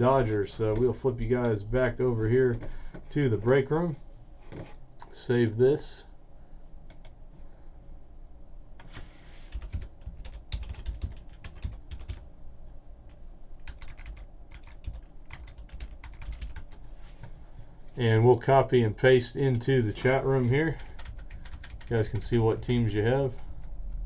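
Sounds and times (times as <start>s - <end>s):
typing on computer keyboard: 9.5s - 12.2s, 13.6s - 16.8s, 20.8s - 22.0s.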